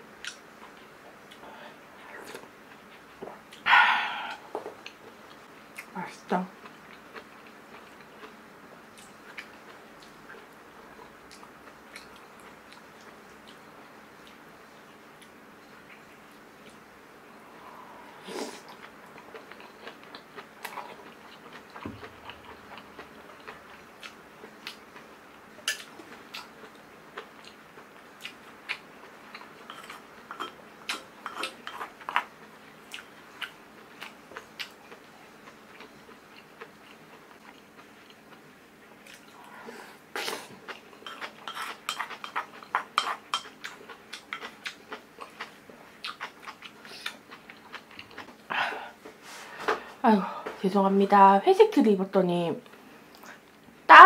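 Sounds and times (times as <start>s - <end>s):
person chewing food: 6.6s - 13.6s, 17.7s - 38.4s, 39.0s - 49.2s.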